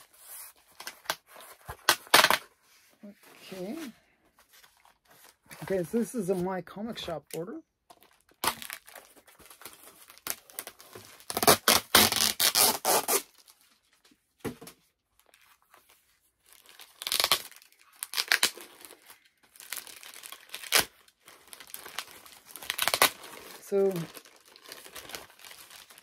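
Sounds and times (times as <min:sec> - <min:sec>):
package tearing and crinkling: 0:00.7 - 0:02.4, 0:07.9 - 0:13.6, 0:16.5 - 0:26.0.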